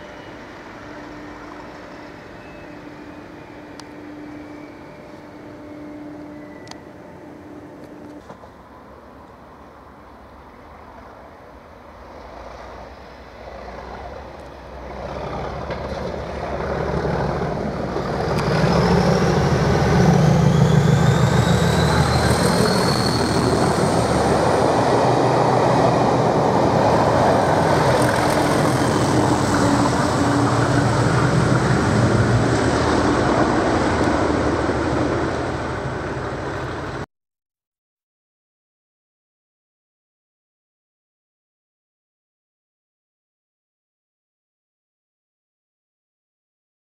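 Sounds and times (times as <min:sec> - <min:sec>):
diesel locomotives under full power: 0:00.0 - 0:37.0
train rushing over rails: 0:00.0 - 0:37.0
turbocharger whistle: 0:18.4 - 0:24.4.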